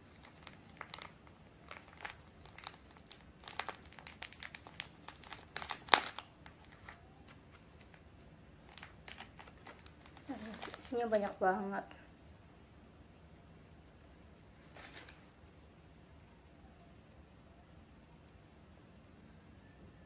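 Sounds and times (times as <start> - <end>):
plastic packaging crinkling and tearing: 0.0 - 11.3, 14.7 - 15.2.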